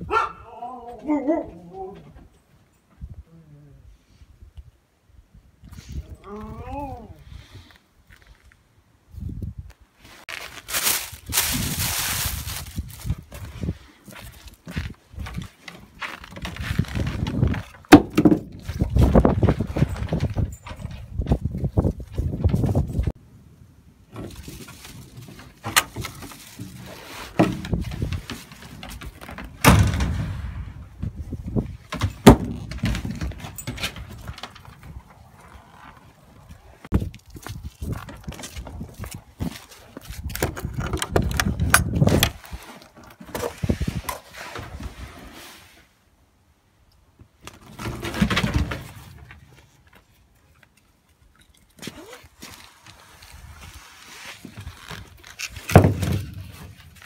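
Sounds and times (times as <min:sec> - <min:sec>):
footsteps on snow: 0:10.0 - 0:17.1
knocks and rustle: 0:10.0 - 0:23.2, 0:24.1 - 0:45.4, 0:47.2 - 0:57.0
footsteps on wooden deck: 0:10.7 - 0:22.9, 0:31.0 - 0:40.7
knocks on wooden boards: 0:32.0 - 0:33.2.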